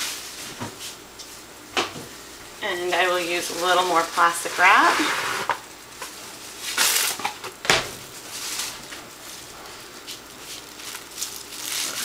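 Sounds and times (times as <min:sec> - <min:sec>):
plastic wrap rustling and crinkling: 0:00.0 - 0:01.4, 0:02.9 - 0:12.0
plastic wrap snapping: 0:06.0 - 0:07.6, 0:10.0 - 0:12.0.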